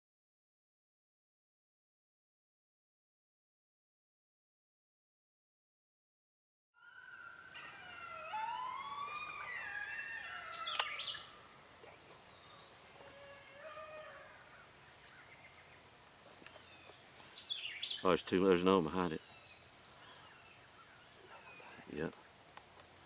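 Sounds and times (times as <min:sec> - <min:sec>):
coyote pup howls: 0:06.8 - 0:11.4, 0:12.9 - 0:14.7
high insect drone: 0:06.8 - 0:23.0
sharp click: 0:10.7 - 0:11.2.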